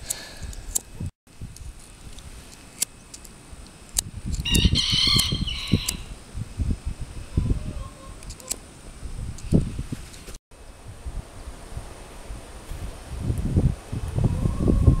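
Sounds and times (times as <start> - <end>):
wind buffeting microphone: 3.6 - 15.0
rooster crowing: 4.4 - 6.1.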